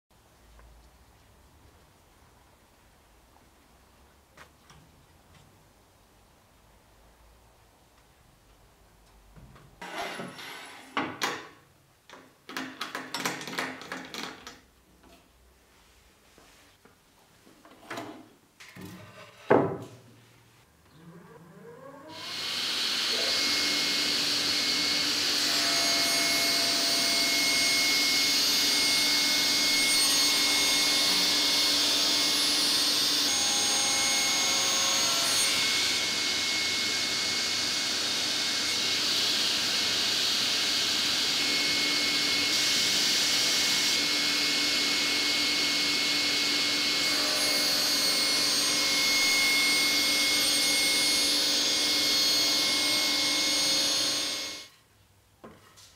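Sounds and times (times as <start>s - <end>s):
table saw running: 22.1s - 54.7s
saw blade cutting board: 22.2s - 54.7s.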